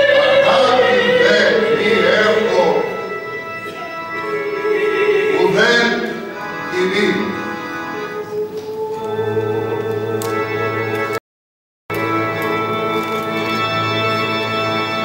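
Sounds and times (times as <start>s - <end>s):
woman soloist singing: 0.0s - 2.0s, 7.9s - 10.6s
choir sustained chords: 0.0s - 10.7s.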